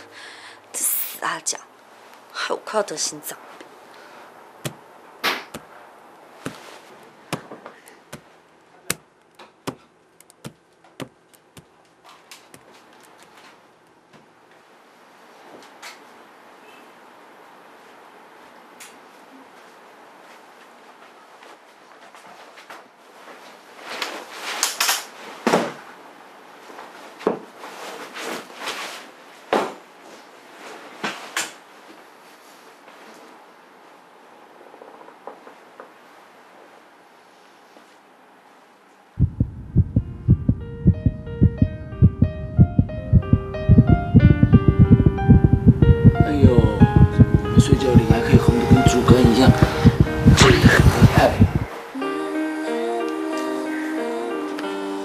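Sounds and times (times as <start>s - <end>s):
sharp knocks: 4.6s - 5.7s, 6.5s - 6.7s, 9.7s - 11.7s
sharp taps on hard floor: 4.6s - 5.7s, 9.7s - 11.7s.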